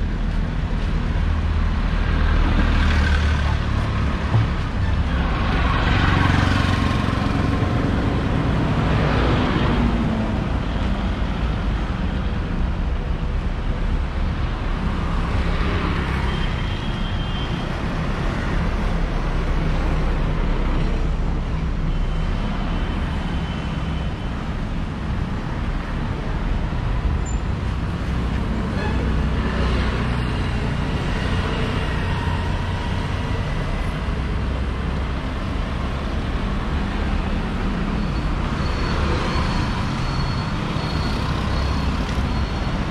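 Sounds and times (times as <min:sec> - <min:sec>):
low traffic rumble: 0:00.0 - 0:16.4
vehicles passing: 0:00.0 - 0:16.6.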